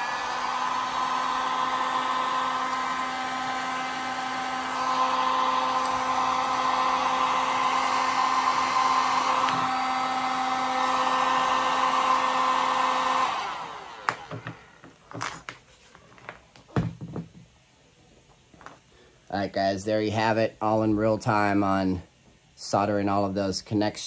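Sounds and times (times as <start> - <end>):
heat gun fan whining: 0.0 - 15.6.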